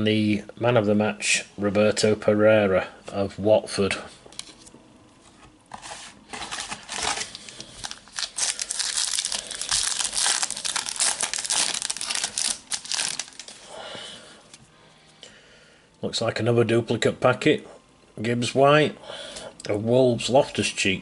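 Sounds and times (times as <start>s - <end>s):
foil packet tearing and crinkling: 6.3s - 13.7s.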